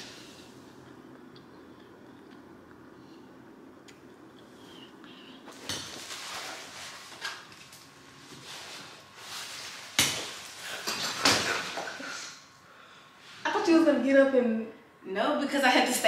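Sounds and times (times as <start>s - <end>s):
rustling of person moving: 5.5s - 12.4s.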